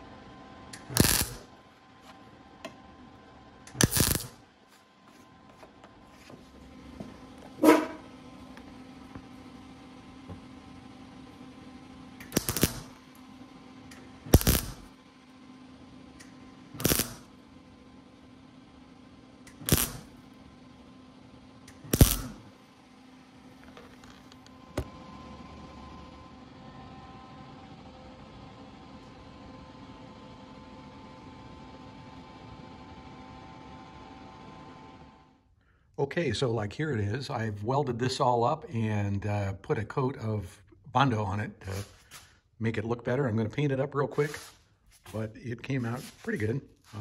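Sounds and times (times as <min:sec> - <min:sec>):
steady low hum: 0:00.0 - 0:47.0
welding arc crackle: 0:00.8 - 0:01.5, 0:03.7 - 0:04.4, 0:12.2 - 0:13.0, 0:14.3 - 0:14.9, 0:16.8 - 0:17.3, 0:19.5 - 0:20.2, 0:21.7 - 0:22.5.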